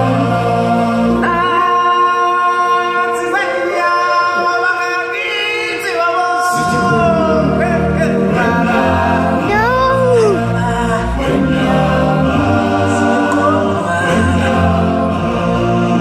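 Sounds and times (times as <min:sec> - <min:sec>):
choir-like voices: 0:00.0 - 0:16.0
person singing held notes: 0:09.5 - 0:10.4.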